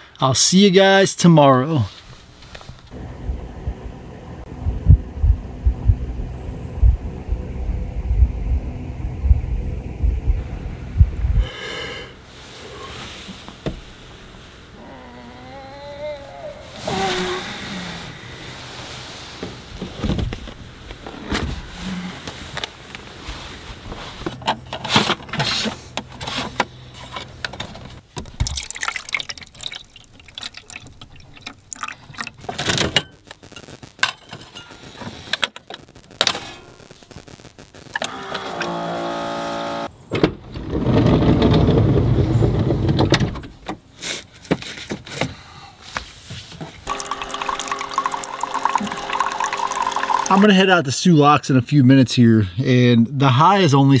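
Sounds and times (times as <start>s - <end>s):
coffee brewing into mug: 28.3s - 32.5s, 46.9s - 50.5s
coffee maker pump hum: 46.9s - 50.4s.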